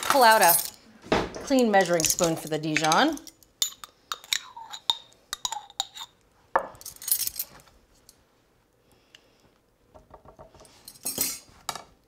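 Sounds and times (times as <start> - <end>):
spoon scraping jar: 3.6 - 6.2.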